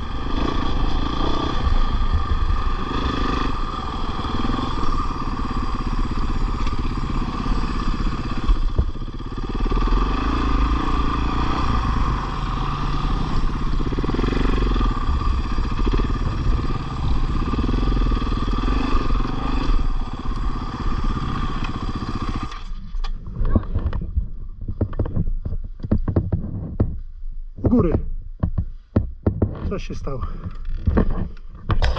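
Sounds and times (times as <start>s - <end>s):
dirt bike engine running: 0.0s - 27.0s
sharp knocks: 24.6s - 27.0s, 27.6s - 29.8s.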